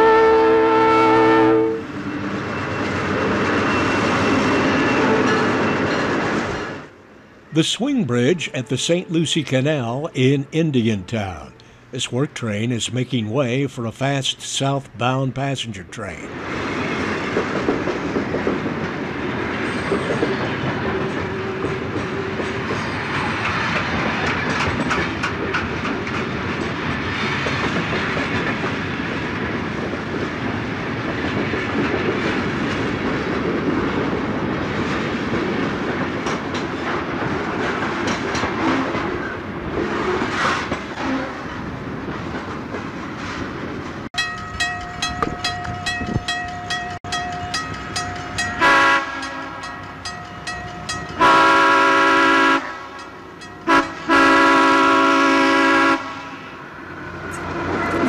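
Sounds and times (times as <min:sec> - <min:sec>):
diesel locomotive horn: 0:00.0 - 0:02.0, 0:48.6 - 0:49.8, 0:51.2 - 0:56.7
train wheels clickety-clack: 0:16.8 - 0:51.6.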